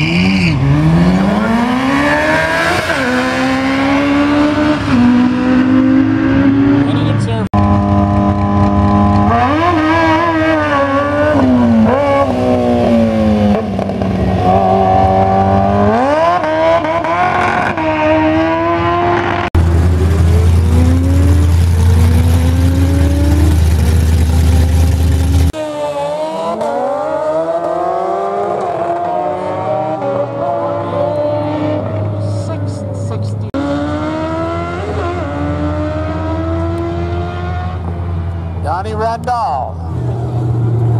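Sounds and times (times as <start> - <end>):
motorcycles accelerating hard: 0.0 - 38.4.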